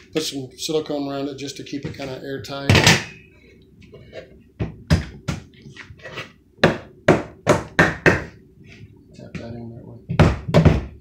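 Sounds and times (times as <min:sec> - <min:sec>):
knocks against wooden cabinet: 0:10.1 - 0:11.0.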